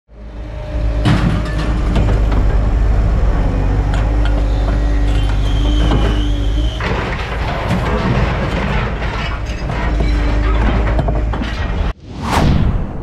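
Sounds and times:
heavy diesel engine rumble: 0.1s - 11.4s
high hydraulic whine: 0.2s - 8.0s
scrap metal clanking: 3.9s - 12.0s.

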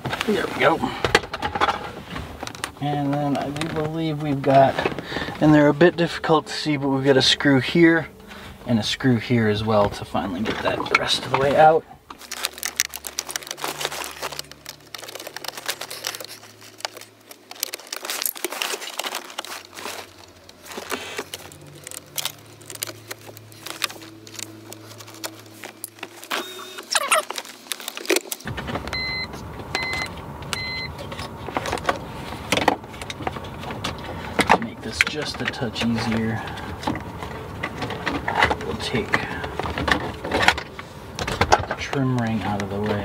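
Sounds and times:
short electronic beeps: 26.4s - 27.2s, 28.9s - 31.0s.

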